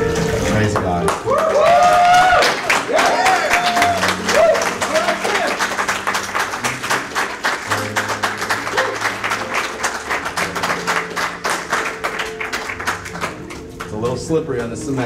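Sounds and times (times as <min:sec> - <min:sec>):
congregation applauding: 0:00.0 - 0:15.0.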